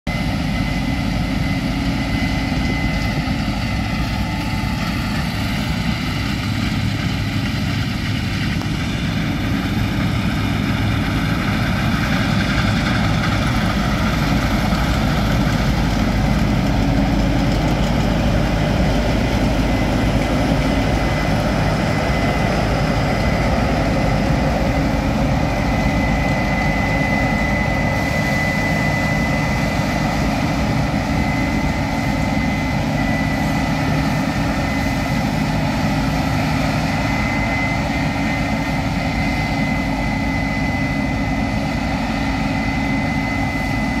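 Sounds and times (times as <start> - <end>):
combine harvester engine drone: 0.1 - 44.0
high machinery whine: 0.1 - 44.0.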